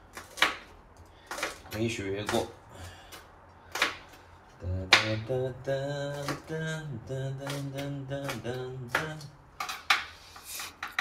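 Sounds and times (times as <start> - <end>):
knife chopping on cutting board: 0.1 - 2.5, 3.1 - 4.2, 4.9 - 5.3, 6.1 - 6.6, 7.3 - 10.1
man singing wordless tune: 4.6 - 9.4.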